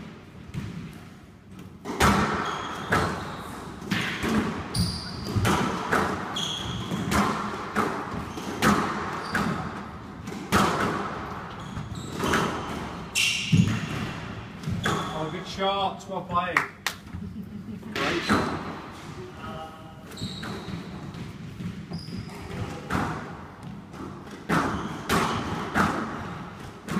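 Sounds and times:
shoes squeaking on wooden floor: 4.7 - 7.3, 8.1 - 10.0, 11.4 - 15.6, 18.1 - 23.0.

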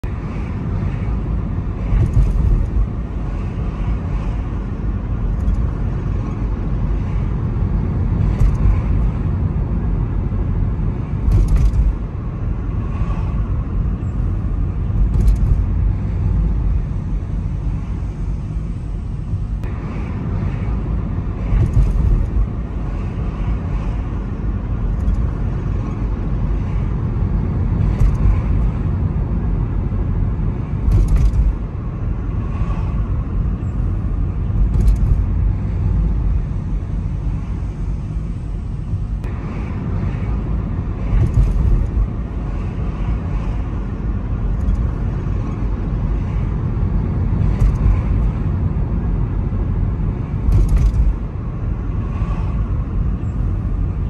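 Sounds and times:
engine and road rumble: 0.0 - 54.0.

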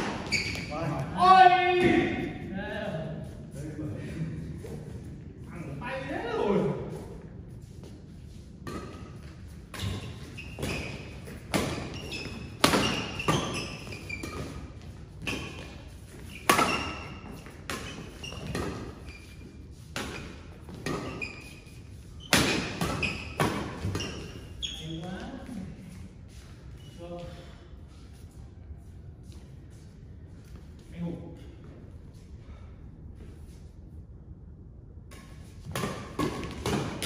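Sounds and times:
rackets hitting shuttlecock: 8.7 - 19.0, 22.2 - 24.3, 35.1 - 37.0.

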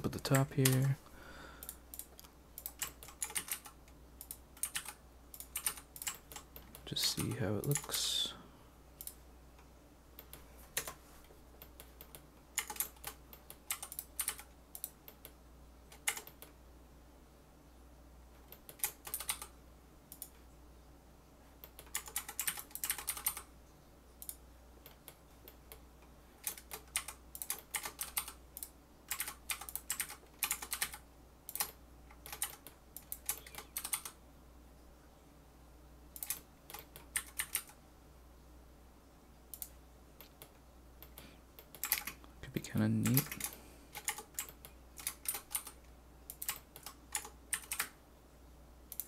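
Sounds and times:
room fan humming: 0.0 - 49.0
computer keyboard tapping: 1.6 - 7.9, 10.2 - 11.0, 11.6 - 16.6, 18.5 - 19.5, 21.6 - 23.5, 26.4 - 34.2, 36.2 - 37.8, 43.0 - 48.0.

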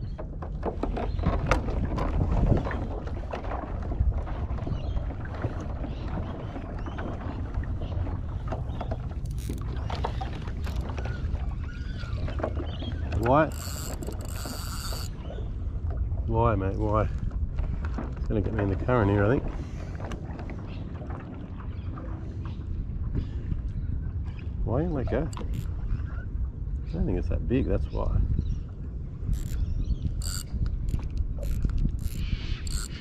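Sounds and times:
water washing on hull: 0.0 - 22.5
pedal drive clicking and creaking: 9.2 - 11.0, 13.1 - 15.1, 25.3 - 25.7, 29.3 - 29.6, 30.2 - 33.0.

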